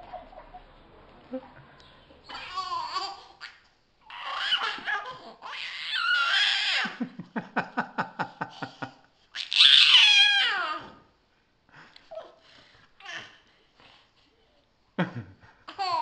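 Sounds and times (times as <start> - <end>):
baby laughing: 2.3 - 7.0, 15.7 - 16.0.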